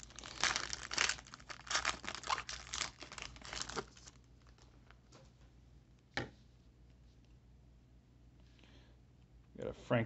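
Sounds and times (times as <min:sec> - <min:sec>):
foil wrapper crinkling and tearing: 0:00.0 - 0:04.7.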